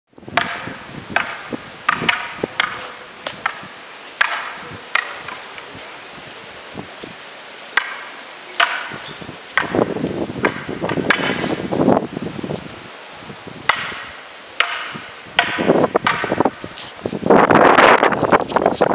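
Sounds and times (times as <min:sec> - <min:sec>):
wooden staffs clacking: 0:00.4 - 0:05.7, 0:07.7 - 0:11.7, 0:13.7 - 0:17.0.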